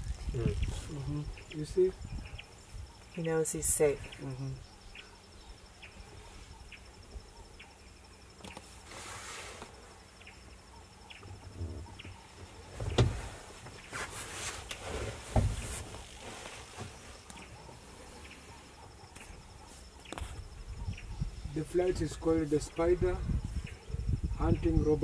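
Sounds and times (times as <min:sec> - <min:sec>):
insect trilling: 0:00.0 - 0:13.0
rustling: 0:11.4 - 0:20.4.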